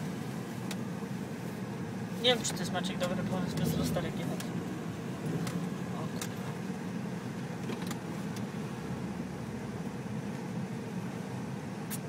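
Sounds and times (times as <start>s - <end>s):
car engine running at low speed: 0.0s - 12.0s.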